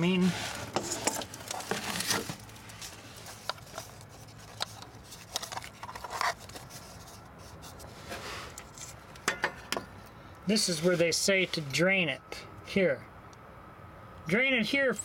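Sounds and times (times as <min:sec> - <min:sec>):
camera handling scrapes and rubs: 0:00.0 - 0:09.2.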